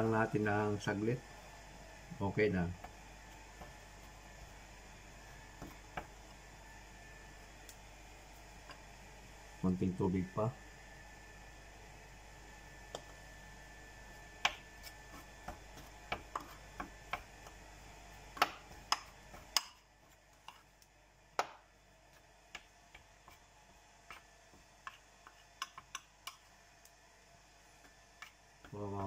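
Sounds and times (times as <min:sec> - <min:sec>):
spoon stirring dough: 0:02.8 - 0:06.5, 0:14.0 - 0:29.0.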